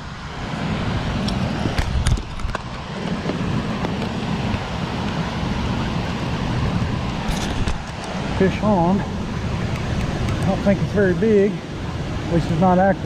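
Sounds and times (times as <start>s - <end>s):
spillway water rushing: 0.0s - 13.0s
sharp clicks: 9.7s - 10.6s.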